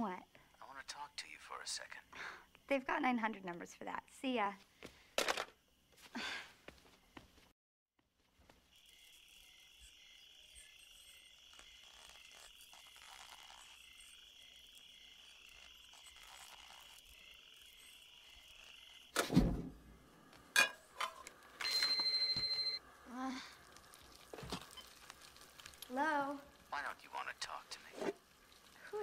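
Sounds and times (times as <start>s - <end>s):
night insects chirring: 0.0s - 4.5s
loud thump: 19.2s - 19.8s.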